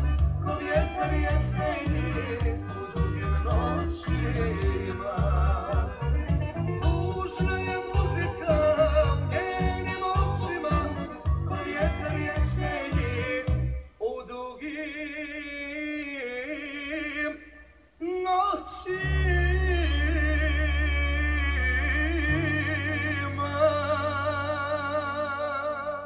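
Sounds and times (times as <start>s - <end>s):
deep bass line: 0.0s - 13.8s, 19.0s - 25.4s
folk-pop song on a record player: 0.0s - 26.0s
man singing ornamented vocal: 0.4s - 26.0s.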